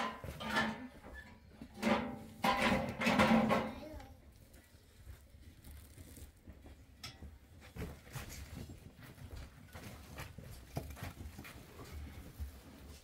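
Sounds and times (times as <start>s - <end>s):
faint footsteps: 3.6s - 13.0s
shuffling: 4.3s - 13.0s.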